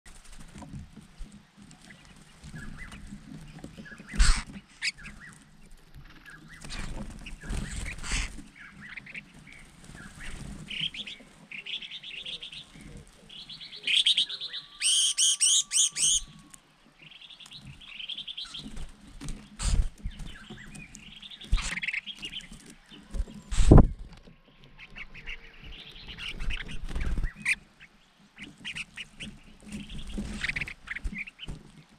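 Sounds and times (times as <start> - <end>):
birds fluttering on branches: 0.1 - 31.9
birds chirping and chattering: 0.2 - 31.9
rapid harsh bird calls: 3.9 - 5.4, 6.2 - 23.9.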